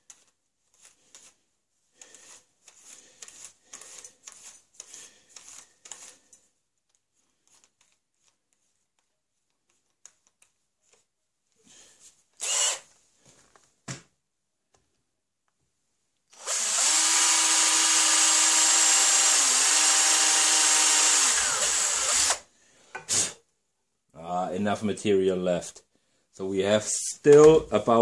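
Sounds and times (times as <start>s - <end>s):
rustling and scraping: 0.0s - 13.8s
cordless drill whirring: 12.4s - 12.9s, 16.3s - 22.5s.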